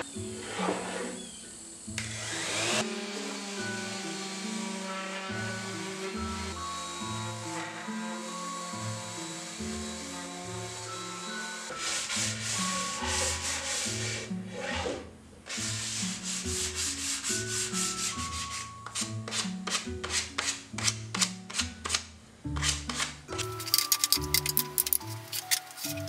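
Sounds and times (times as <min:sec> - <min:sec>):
background music: 0:00.0 - 0:26.0
hand sanding wood: 0:10.8 - 0:22.0.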